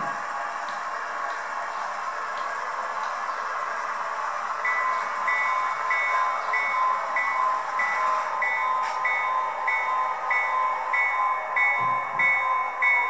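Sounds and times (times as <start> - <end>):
model train running noise: 0.0 - 13.0
locomotive bell ringing: 4.6 - 13.0.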